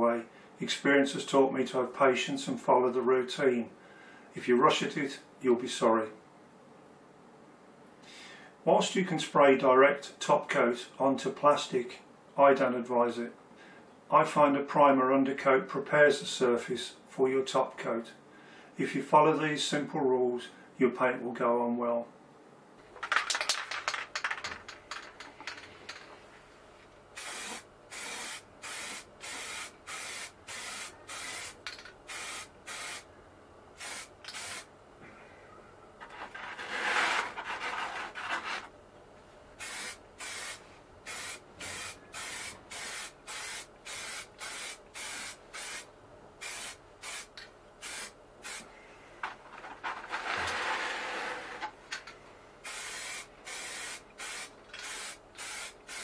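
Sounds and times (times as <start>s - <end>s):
aerosol spray can hissing: 27.2s - 33.0s, 33.8s - 34.7s, 39.6s - 48.6s, 52.7s - 56.0s.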